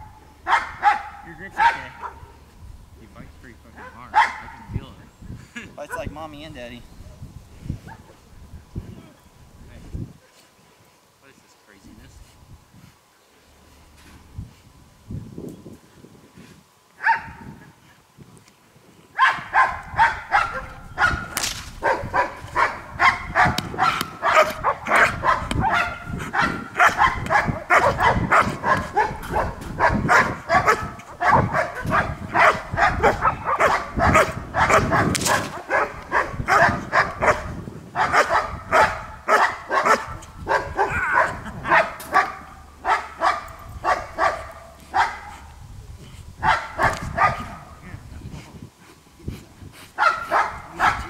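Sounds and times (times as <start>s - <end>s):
dog barking rapidly: 0.5s - 2.4s, 3.8s - 4.7s, 17.0s - 17.4s, 19.2s - 45.5s, 46.4s - 47.8s, 50.0s - 51.0s.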